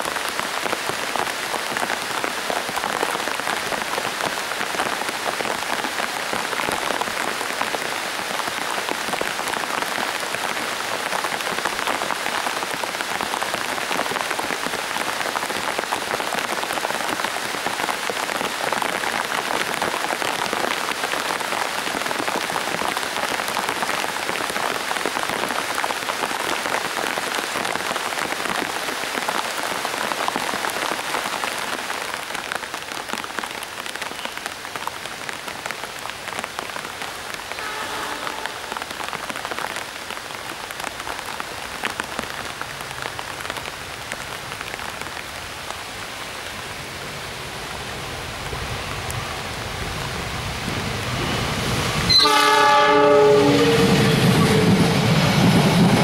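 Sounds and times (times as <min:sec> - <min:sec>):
heavy rain falling: 0:00.0 - 0:56.0.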